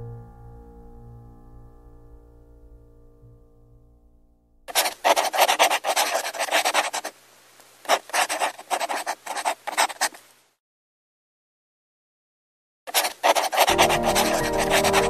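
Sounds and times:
marker scribbling on paper: 4.7 - 7.1, 7.9 - 10.2, 12.9 - 15.0.

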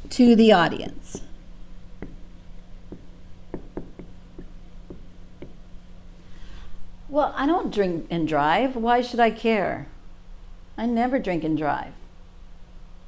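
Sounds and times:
marker writing on whiteboard: 0.6 - 6.0.

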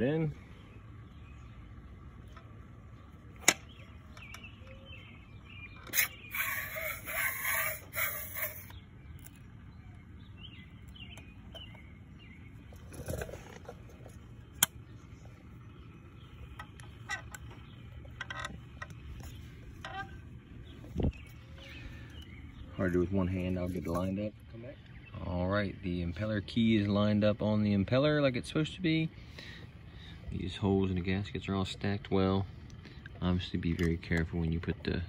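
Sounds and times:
faint bird chirps: 0.0 - 13.2, 14.5 - 25.7.

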